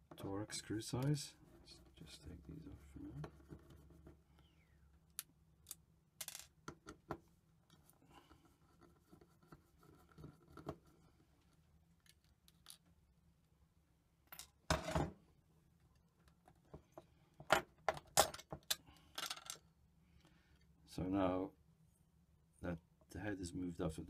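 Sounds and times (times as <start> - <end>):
metal parts being handled: 18.0 - 19.6.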